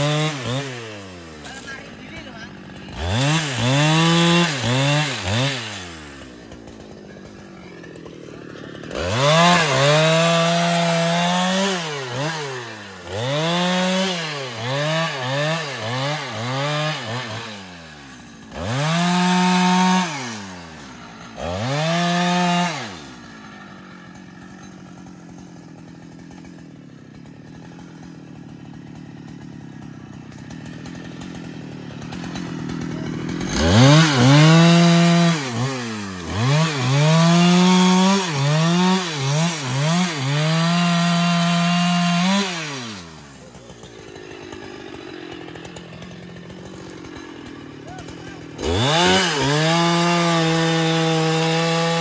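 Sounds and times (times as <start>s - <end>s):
chainsaw cutting and revving: 0.0s - 52.0s.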